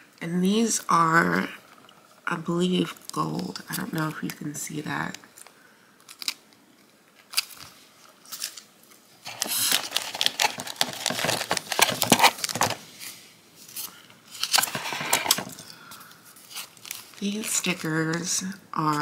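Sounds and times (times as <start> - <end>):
plastic packaging crinkling: 5.0 - 18.4.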